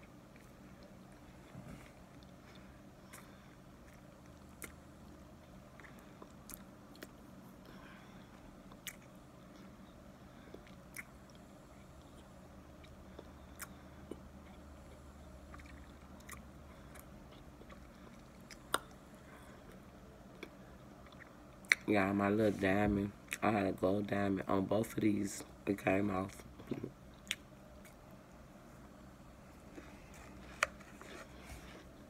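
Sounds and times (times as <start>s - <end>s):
chewing and crunching: 0.0s - 7.8s, 8.6s - 21.9s, 26.3s - 28.4s.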